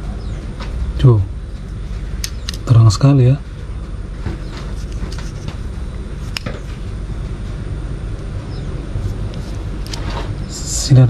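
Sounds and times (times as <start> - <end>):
steady low rumble: 0.0 - 11.0
flashlight being handled: 4.7 - 5.6, 6.2 - 6.6.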